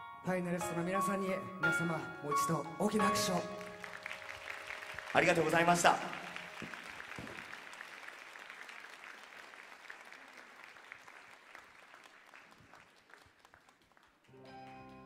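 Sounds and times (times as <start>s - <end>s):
soft music: 0.0s - 6.7s, 14.3s - 15.0s
audience applauding: 3.3s - 15.0s.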